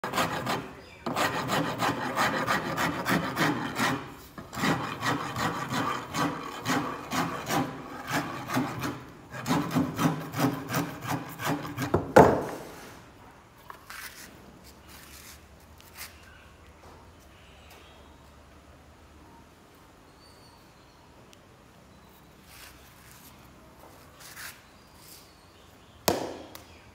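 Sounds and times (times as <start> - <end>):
hand file rasping: 0.0 - 12.0
sharp knock: 26.1 - 26.6.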